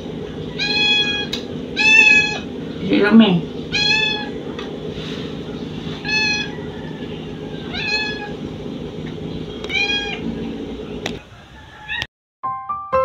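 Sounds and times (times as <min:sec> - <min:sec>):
steady low hum: 0:00.0 - 0:11.5
high-pitched animal cries: 0:00.5 - 0:02.5, 0:03.7 - 0:04.4, 0:06.0 - 0:08.4, 0:09.7 - 0:10.2, 0:11.6 - 0:12.1.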